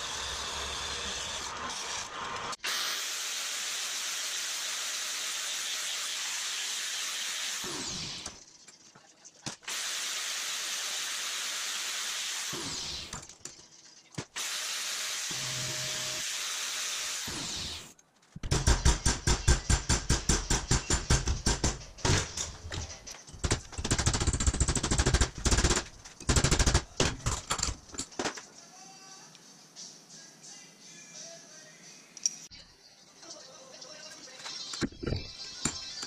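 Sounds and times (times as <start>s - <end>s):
angle grinder on steel: 0.0s - 6.0s.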